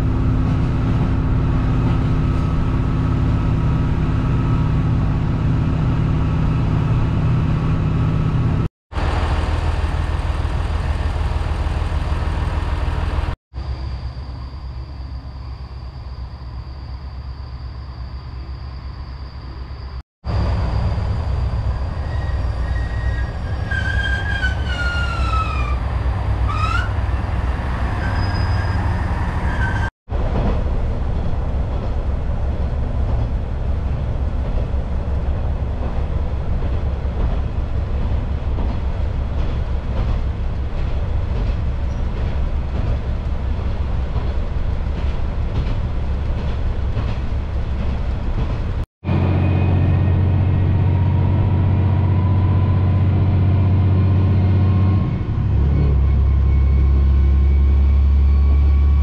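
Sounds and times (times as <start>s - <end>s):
railcar engine and wheels rumbling: 0.0s - 59.0s
high wheel squeal: 13.6s - 29.9s.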